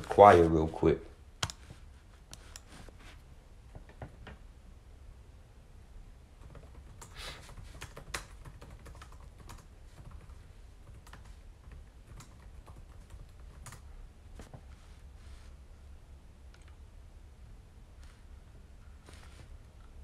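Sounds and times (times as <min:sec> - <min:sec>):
low steady hum: 0:00.0 - 0:20.0
keyboard typing clicks: 0:01.4 - 0:01.6, 0:06.4 - 0:13.8.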